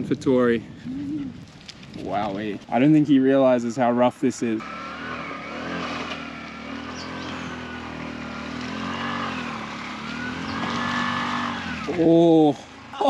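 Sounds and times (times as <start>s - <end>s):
small engine revving: 4.6s - 13.0s.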